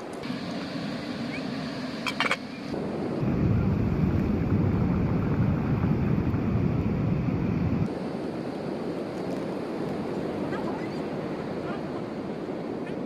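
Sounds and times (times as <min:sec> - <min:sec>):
wind buffeting microphone: 0:02.7 - 0:13.0.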